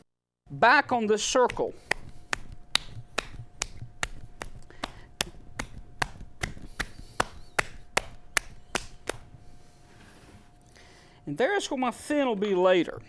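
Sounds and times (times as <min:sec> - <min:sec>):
tapping on clay: 0:01.3 - 0:09.3.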